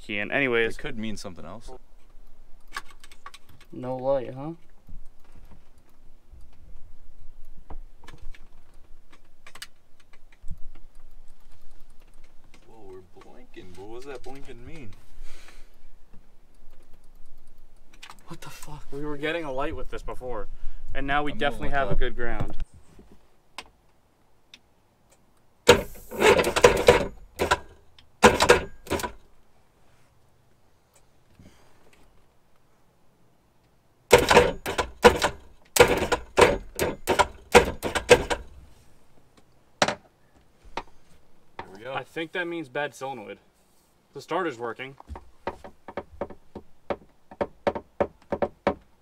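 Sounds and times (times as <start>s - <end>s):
wiring and connectors clicking: 7.4s - 15.0s, 16.1s - 18.3s, 24.5s - 29.3s, 33.6s - 38.6s
starter motor cranking: 25.7s - 29.2s, 34.1s - 38.5s.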